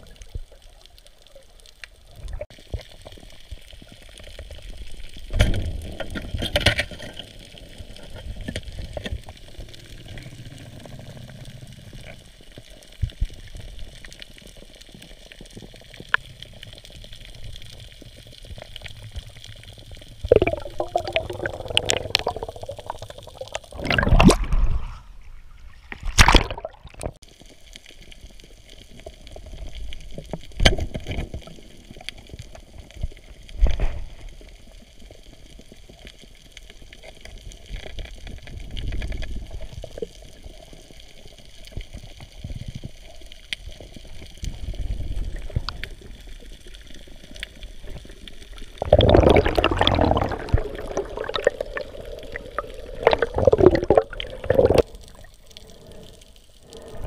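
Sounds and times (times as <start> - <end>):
underwater sloshing and bubbling: 0.0 - 57.0
rushing water: 20.2 - 27.2, 44.1 - 57.0.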